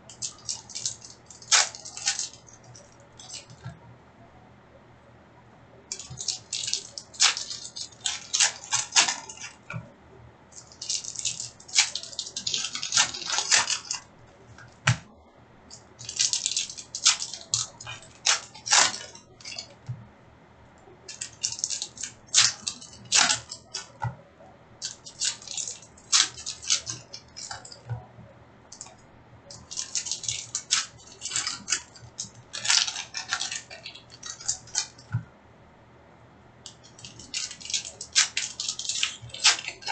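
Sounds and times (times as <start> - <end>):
foil wrappers crinkling and tearing: 0.0 - 3.7, 5.9 - 9.9, 10.6 - 15.1, 15.7 - 19.8, 21.0 - 24.1, 24.8 - 28.0, 28.8 - 35.2, 36.7 - 39.9
cards being handled: 5.9 - 9.9, 10.6 - 15.1, 36.7 - 39.9.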